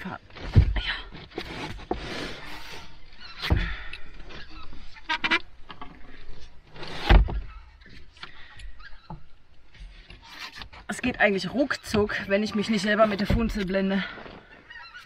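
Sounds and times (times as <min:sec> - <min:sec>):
rustling and scraping: 0:00.0 - 0:15.0
heavy thumps: 0:03.4 - 0:03.9, 0:13.2 - 0:13.8.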